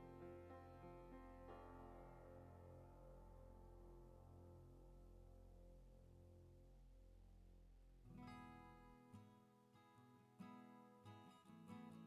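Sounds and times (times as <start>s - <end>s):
plucked acoustic guitar music: 8.0s - 12.0s.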